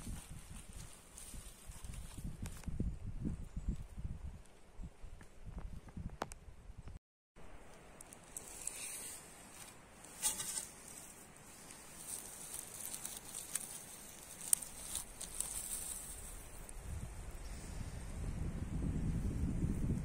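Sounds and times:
dry grass rustling and crackling: 0:00.0 - 0:02.9, 0:07.6 - 0:17.3
wind rumbling on microphone: 0:00.0 - 0:07.0, 0:14.2 - 0:20.0.

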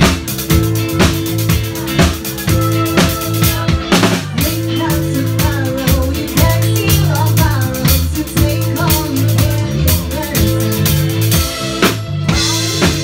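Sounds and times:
drum kit beat: 0:00.0 - 0:13.0
repeating bass line: 0:00.0 - 0:13.0
woman singing: 0:01.5 - 0:11.0, 0:12.3 - 0:13.0.

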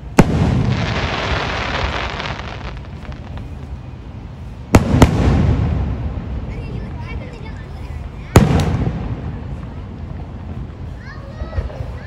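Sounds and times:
sharp firework bangs: 0:00.0 - 0:03.5, 0:04.7 - 0:06.2, 0:08.3 - 0:09.5.

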